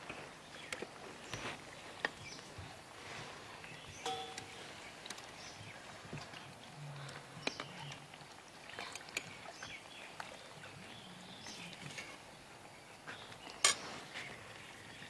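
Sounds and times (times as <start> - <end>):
metal clink against pot: 4.0 - 4.7.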